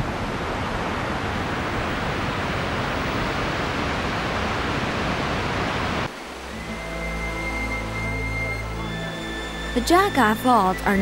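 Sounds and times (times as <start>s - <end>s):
waterfall roaring: 0.0s - 11.0s
music with long held notes: 6.4s - 11.0s.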